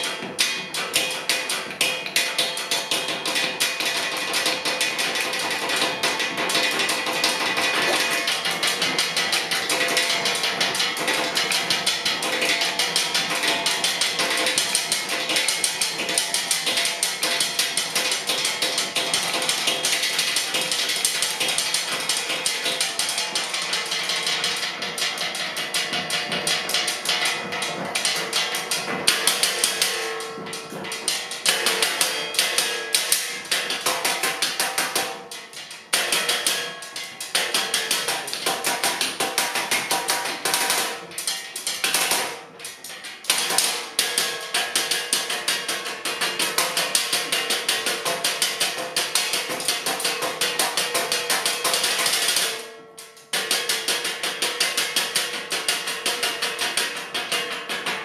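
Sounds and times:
sticks striking wooden tabletop: 0:06.5 - 0:08.5.

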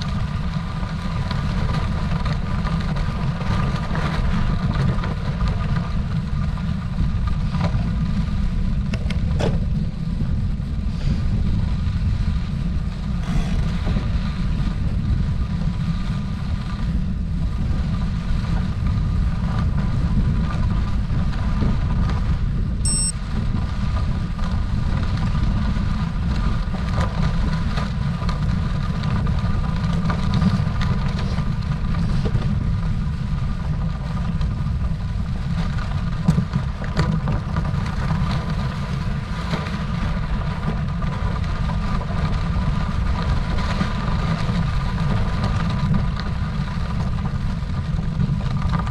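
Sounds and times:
tyres rumbling on gravel: 0:00.0 - 0:48.9
wind noise: 0:00.0 - 0:48.9
faint steady whine: 0:22.8 - 0:23.4.

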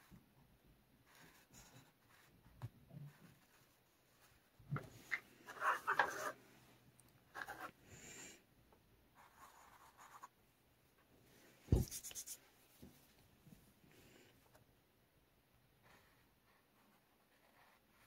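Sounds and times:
marker scratching on canvas: 0:01.0 - 0:02.3, 0:03.0 - 0:06.4, 0:07.3 - 0:07.8, 0:09.2 - 0:10.4, 0:11.7 - 0:12.4, 0:15.8 - 0:18.0.

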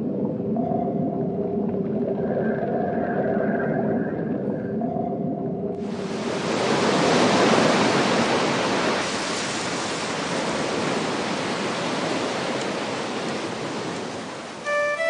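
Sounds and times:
sea waves rushing: 0:05.8 - 0:15.0
pitched music notes: 0:14.6 - 0:15.0.

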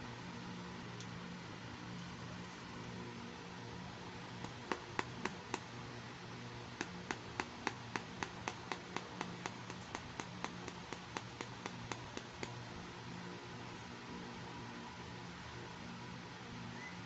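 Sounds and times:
fingernails tapping on plastic: 0:04.4 - 0:05.7, 0:06.8 - 0:12.6.

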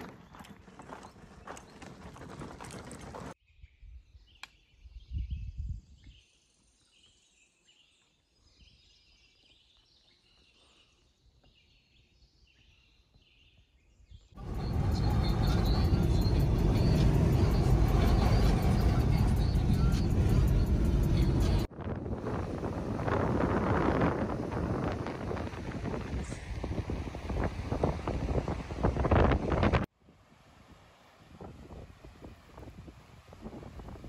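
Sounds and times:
songbirds chirping: 0:00.0 - 0:21.7
road and engine noise inside car: 0:14.4 - 0:21.7.

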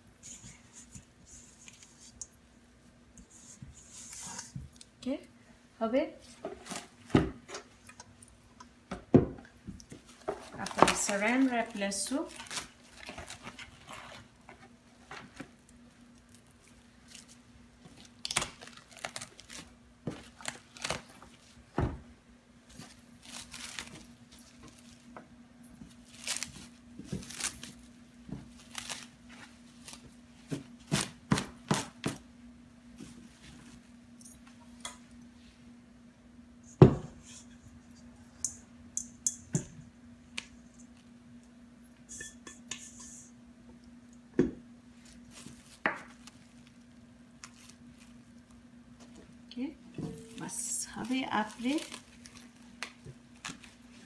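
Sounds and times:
cling wrap crinkling: 0:10.2 - 0:14.4, 0:16.0 - 0:21.5, 0:22.7 - 0:25.1, 0:25.9 - 0:27.9, 0:28.5 - 0:30.2, 0:45.0 - 0:48.6, 0:50.3 - 0:54.0.

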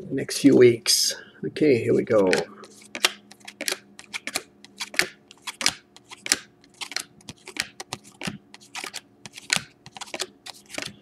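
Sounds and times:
trading cards flipping: 0:02.1 - 0:11.0.

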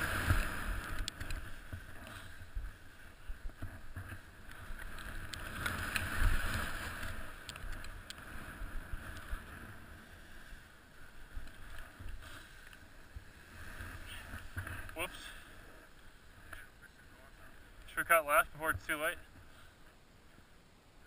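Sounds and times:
snowboard scraping through snow: 0:00.0 - 0:07.4, 0:08.2 - 0:16.4.

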